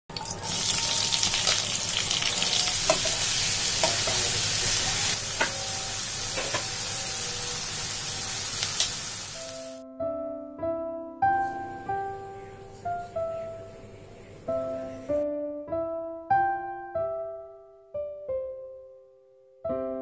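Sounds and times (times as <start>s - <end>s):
piano music: 0.1s - 20.0s
onions sizzling in hot oil: 0.2s - 9.8s.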